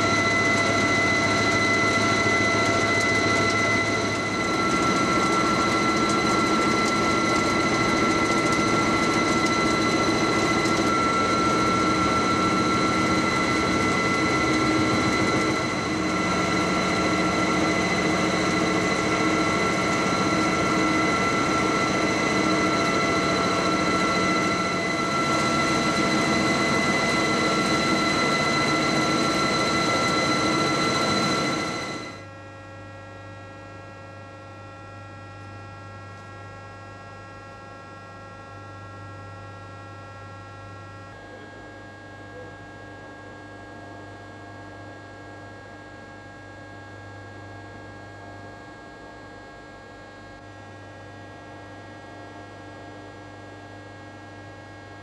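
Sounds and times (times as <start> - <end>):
lathe whirring with high tones: 0.0 - 32.3
low machine hum: 0.0 - 45.8.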